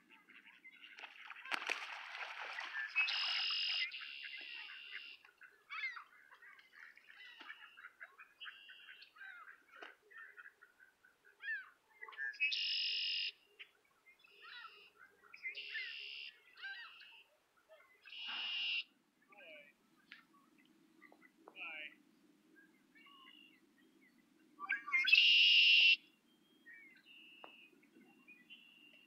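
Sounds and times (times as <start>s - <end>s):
blackbird buzzy trills: 1.2s - 6.1s, 18.0s - 18.8s
birds chirping and whistling: 2.6s - 5.2s, 23.2s - 29.0s.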